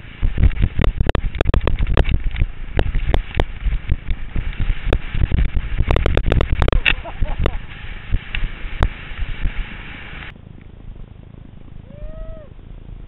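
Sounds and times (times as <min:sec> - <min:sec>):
skis clattering over rough snow: 0:00.0 - 0:10.3
steady low rumble: 0:00.0 - 0:13.0.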